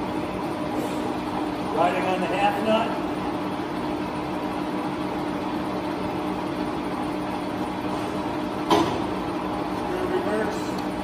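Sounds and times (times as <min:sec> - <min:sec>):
lathe motor humming: 0:00.0 - 0:11.0.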